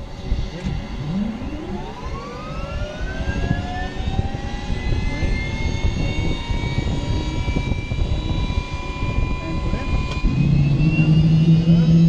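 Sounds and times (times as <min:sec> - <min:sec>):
dense low rumble: 0:00.0 - 0:12.0
helicopter turbine whine: 0:00.0 - 0:12.0.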